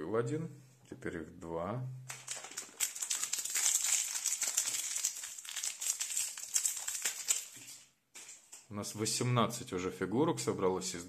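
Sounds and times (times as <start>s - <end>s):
plastic wrapper crinkling and tearing: 2.1s - 8.6s.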